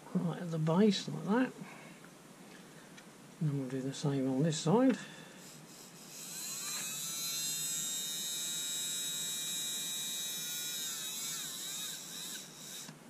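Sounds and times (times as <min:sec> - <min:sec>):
small motor whining: 0:05.4 - 0:13.0.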